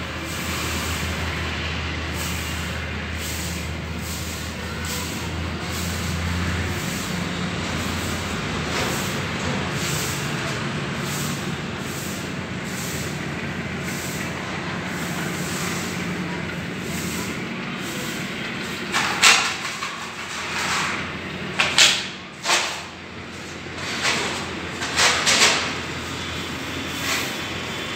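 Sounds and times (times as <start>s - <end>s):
train coaches rolling past: 0.0s - 27.9s
loud hiss bursts: 11.0s - 19.2s.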